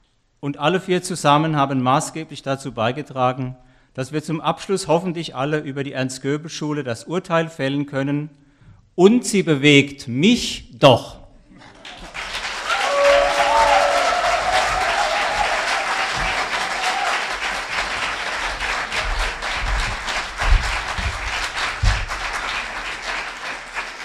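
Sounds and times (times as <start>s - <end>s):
audience applauding: 11.6s - 24.0s
low thumps: 18.4s - 22.6s.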